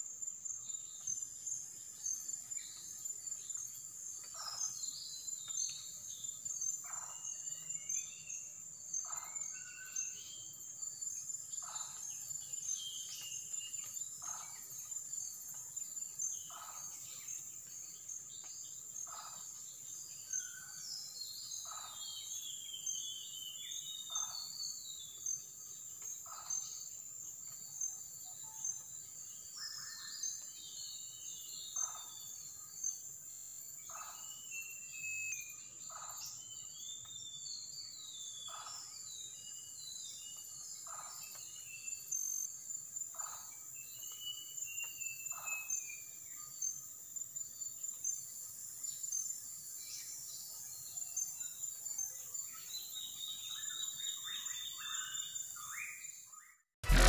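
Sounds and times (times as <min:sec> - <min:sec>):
bird chirps: 0:00.0 - 0:33.1, 0:33.8 - 0:42.6, 0:43.2 - 0:46.8.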